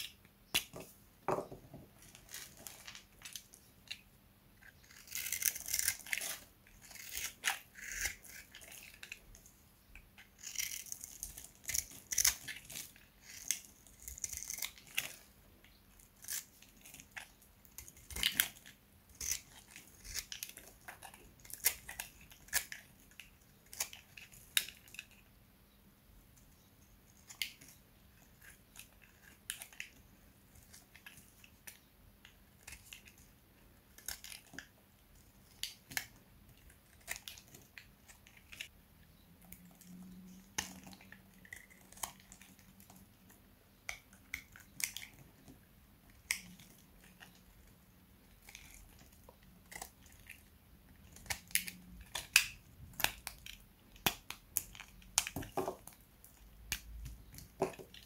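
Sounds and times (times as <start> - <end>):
hard soap crunching: 4.6 - 9.4, 10.2 - 15.4, 16.1 - 25.2, 27.2 - 58.0.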